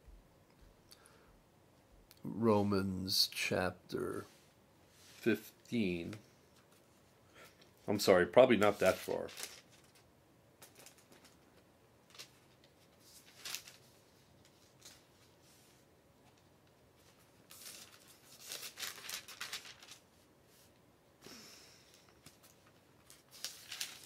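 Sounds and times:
thin paper flipping and rustling: 8.6 - 20.7, 21.9 - 24.0
book pages turning: 12.1 - 20.2, 22.2 - 24.0.

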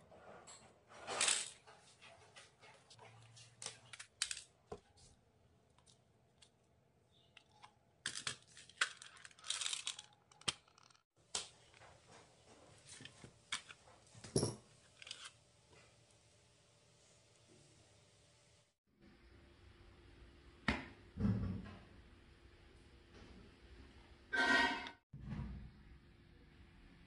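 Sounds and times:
beads clicking and clattering: 8.1 - 11.0.

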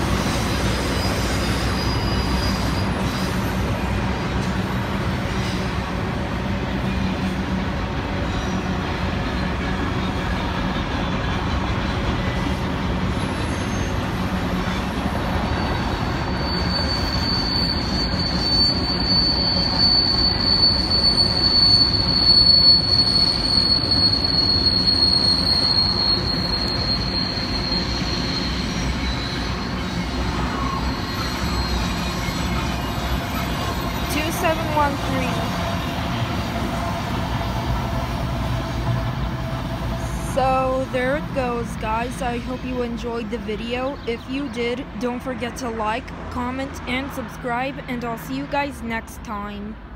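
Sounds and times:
freight train rumbling past: 0.0 - 49.9
high thin wheel squeal: 0.1 - 5.8, 12.2 - 38.8.

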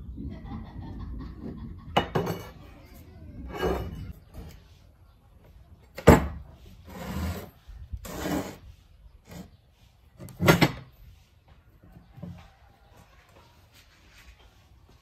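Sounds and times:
steel scraping over wood: 3.4 - 4.6, 6.7 - 9.6.

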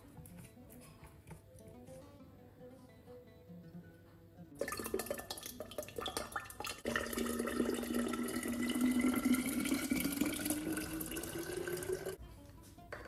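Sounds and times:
liquid pouring into glass carafe: 4.6 - 12.2.

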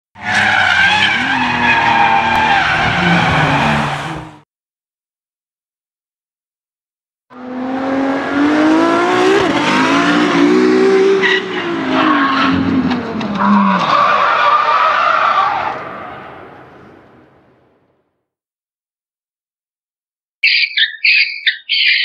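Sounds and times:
tyres squealing and skidding: 0.2 - 4.4, 11.0 - 17.0
car engine revving: 7.3 - 14.4.

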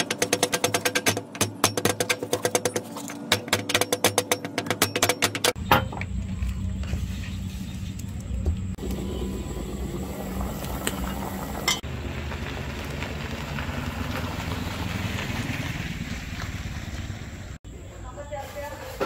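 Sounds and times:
motorbike passing on dirt road: 8.8 - 17.6.

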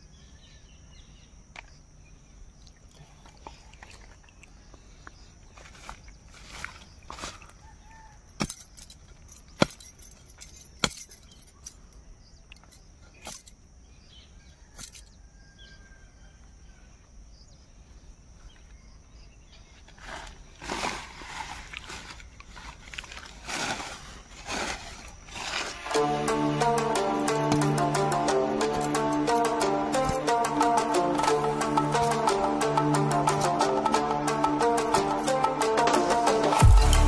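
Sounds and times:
rustling of leaves and plants: 2.3 - 13.8, 16.8 - 30.8.

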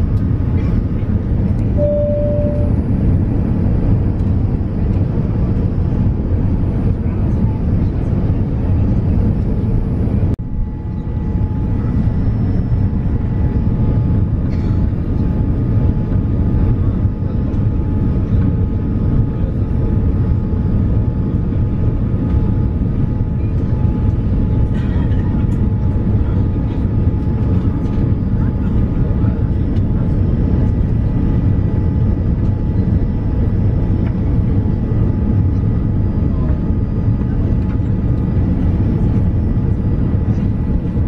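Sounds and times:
faint whine tones: 0.0 - 5.7
airliner engine rumble: 0.0 - 41.0.

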